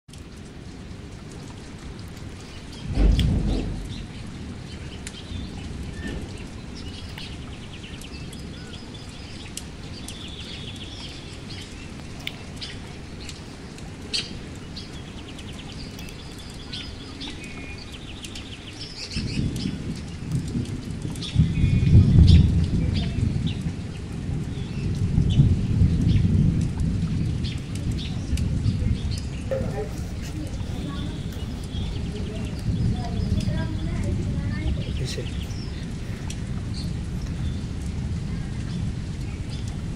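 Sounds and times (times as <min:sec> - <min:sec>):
wind rumble on microphone: 0:00.1 - 0:39.9
faint clicks: 0:06.0 - 0:21.3, 0:35.6 - 0:38.0.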